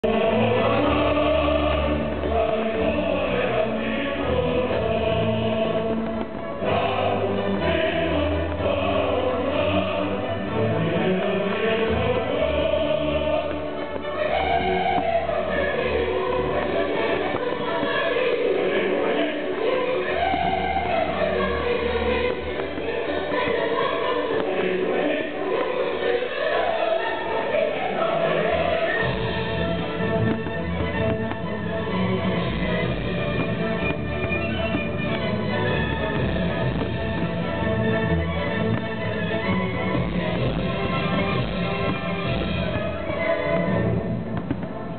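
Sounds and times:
choir singing with accompaniment: 0.0 - 44.9.

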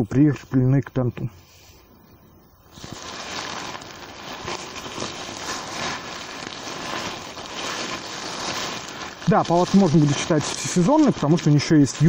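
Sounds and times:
tent fabric rustling: 2.6 - 12.0.

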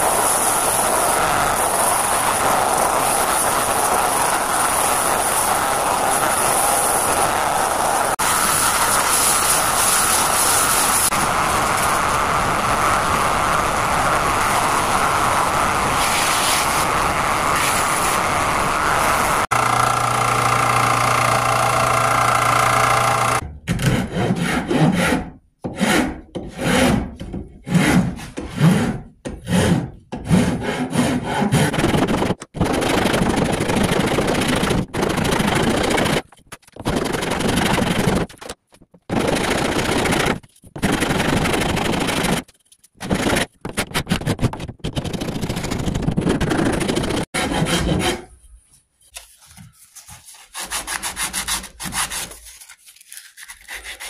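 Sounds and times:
file rasping on wood: 19.5 - 31.8, 46.7 - 48.4, 50.2 - 52.5, 53.1 - 54.0.

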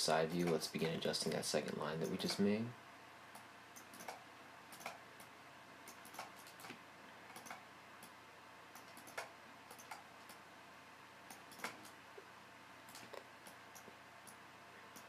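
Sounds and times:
low steady hiss: 0.0 - 15.0
computer mouse clicks: 3.4 - 10.4, 11.3 - 12.0, 12.9 - 15.0.

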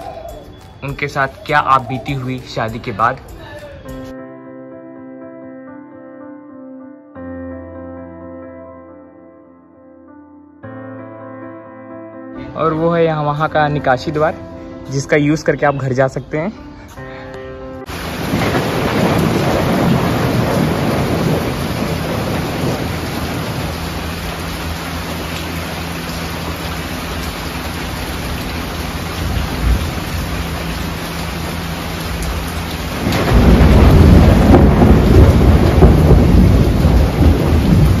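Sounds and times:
steady rain: 17.8 - 38.0
rolling thunder: 17.9 - 24.4, 29.2 - 30.6, 32.2 - 38.0.

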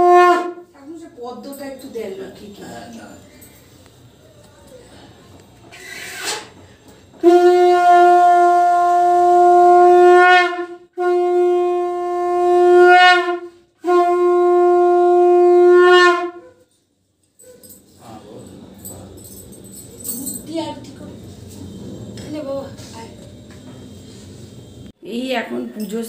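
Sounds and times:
conch shell blasts: 0.0 - 0.8, 5.8 - 16.6.

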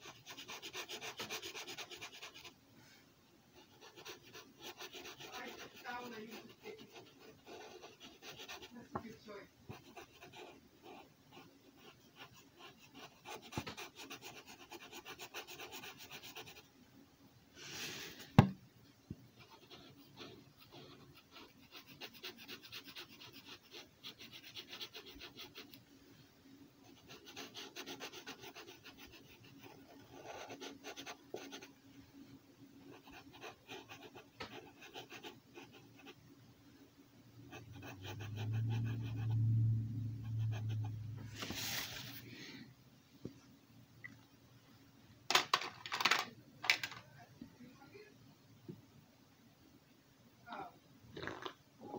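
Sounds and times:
marker scratching on paper: 0.0 - 2.5, 3.6 - 16.6, 19.4 - 25.7, 26.9 - 31.7, 32.9 - 36.2
low rumble: 38.4 - 42.1.

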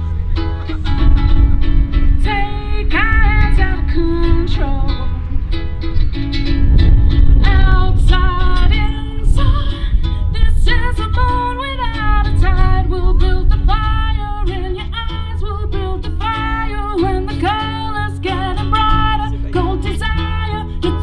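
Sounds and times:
guitar accompaniment: 0.0 - 21.0
heavy bass: 0.0 - 21.0
person singing long notes: 1.9 - 5.5.

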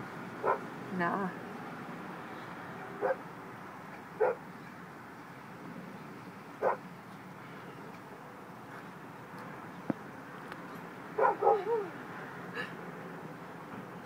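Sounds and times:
dog barking: 0.4 - 0.6, 3.0 - 3.2, 4.2 - 4.4, 6.6 - 6.8, 11.2 - 11.9.

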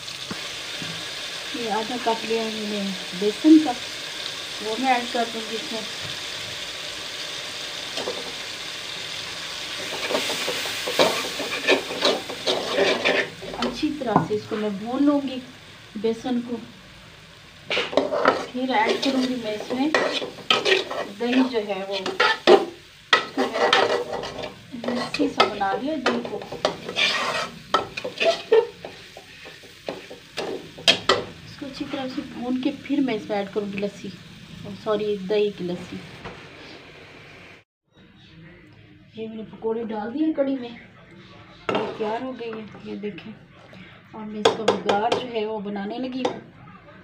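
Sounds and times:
masala sizzling in a wok: 0.0 - 37.6, 41.7 - 43.4, 44.1 - 46.6
metal spatula scraping wok: 7.8 - 15.2, 17.6 - 36.9, 41.7 - 43.0.

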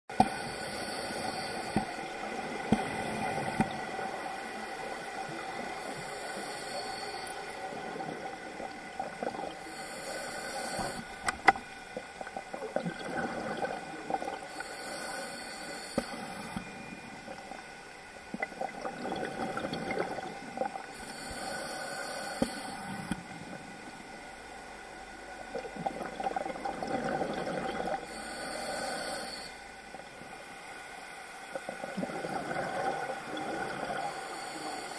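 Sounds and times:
faint steady hum: 0.1 - 34.9
regulator hissing on inhalation: 0.2 - 2.0, 9.6 - 11.3, 14.5 - 16.6, 21.0 - 23.2, 28.1 - 29.6
bubbles rumbling underwater: 12.1 - 14.5, 18.3 - 20.9, 25.5 - 28.0, 31.8 - 34.1.

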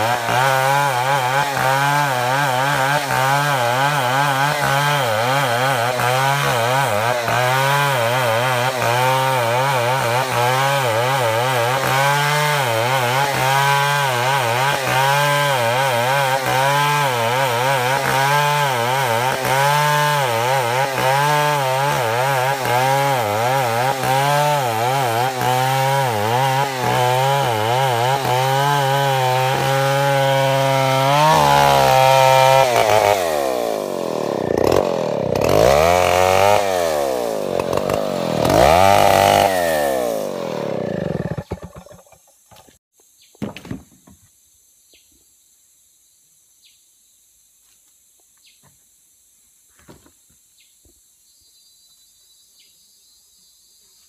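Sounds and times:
chainsaw cutting a log: 0.0 - 42.8.

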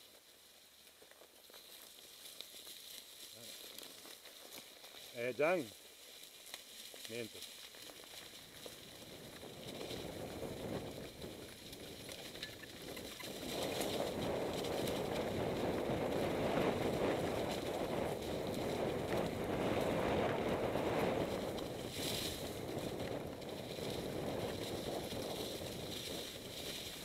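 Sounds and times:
tyres rolling through leaves: 0.0 - 27.0
bike rattling over bumps: 7.6 - 27.0
wind on microphone: 8.8 - 27.0.

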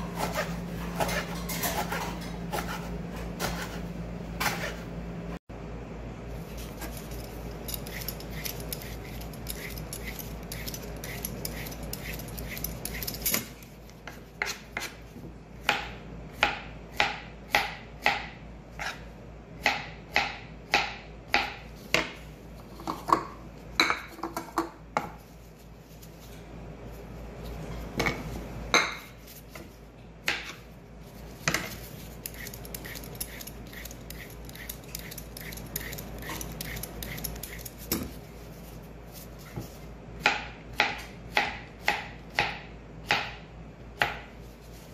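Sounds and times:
knife chopping on cutting board: 0.0 - 3.8, 13.3 - 15.0, 15.6 - 22.2, 28.0 - 30.6, 40.2 - 43.4, 44.0 - 44.4
peeler scraping zucchini skin: 6.6 - 15.0, 31.5 - 38.0.

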